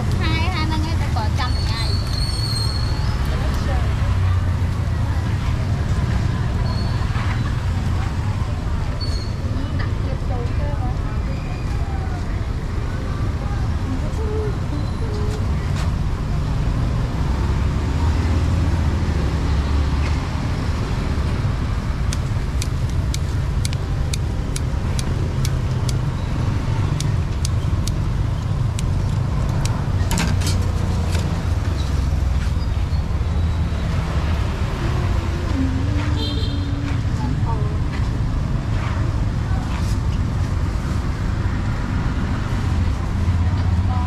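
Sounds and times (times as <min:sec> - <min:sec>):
traffic engines rumbling: 0:00.0 - 0:44.0
sharp regular ticks: 0:22.0 - 0:30.0.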